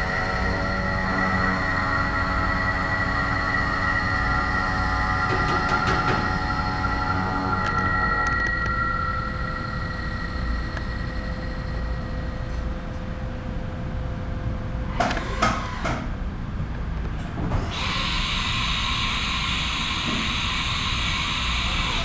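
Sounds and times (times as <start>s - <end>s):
mill spindle whining: 0.0s - 13.2s, 17.5s - 22.0s
low machine rumble: 0.0s - 22.0s
machine clunks: 5.1s - 8.8s
air hiss: 17.7s - 22.0s.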